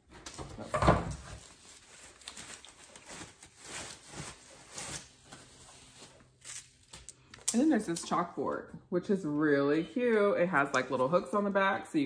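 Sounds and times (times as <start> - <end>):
packaging rustling: 1.1 - 7.2.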